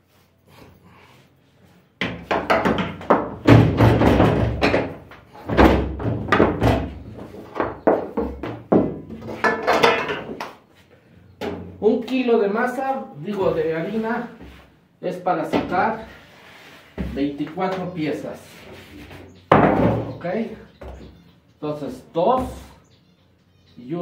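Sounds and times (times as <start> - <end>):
dough divider thunks and clatter: 2.0 - 10.4.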